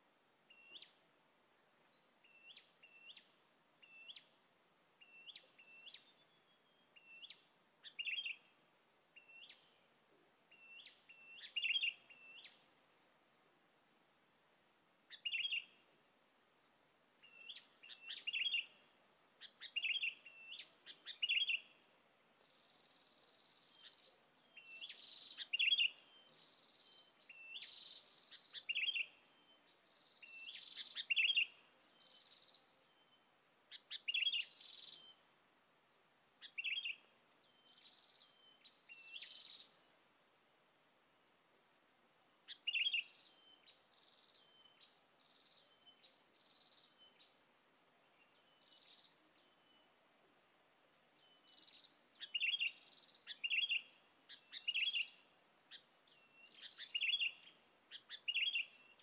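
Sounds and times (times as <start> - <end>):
faint high-pitched hum: 0.0 - 59.0
bulbuls chirping: 17.2 - 21.8, 22.4 - 33.1, 42.5 - 47.4, 51.2 - 59.0.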